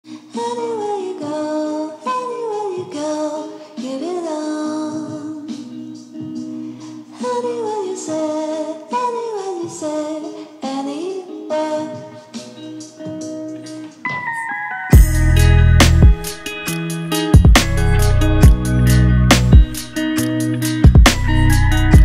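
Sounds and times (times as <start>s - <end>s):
woman singing slow melody: 0.1s - 13.0s.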